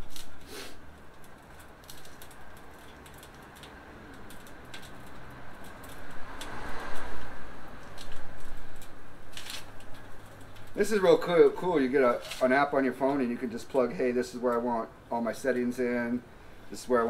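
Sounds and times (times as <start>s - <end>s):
cables rustling: 0.0s - 13.4s.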